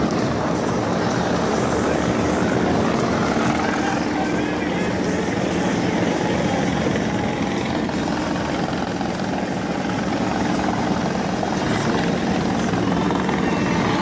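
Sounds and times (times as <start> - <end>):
loud steady engine noise: 0.0 - 14.0.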